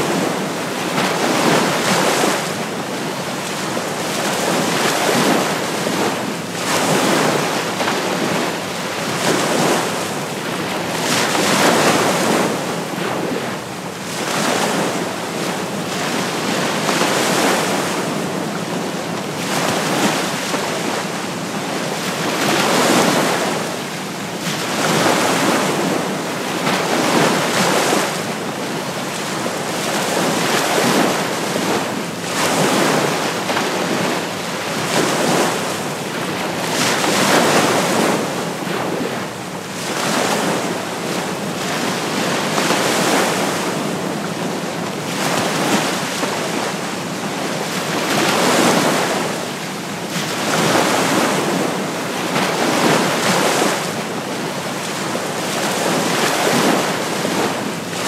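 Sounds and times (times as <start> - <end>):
ocean waves breaking gently: 0.0 - 58.0.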